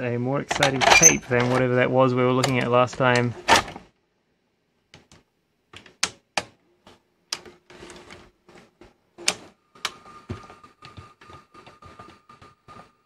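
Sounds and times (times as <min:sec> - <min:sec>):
steady tape whine: 0:07.8 - 0:13.0.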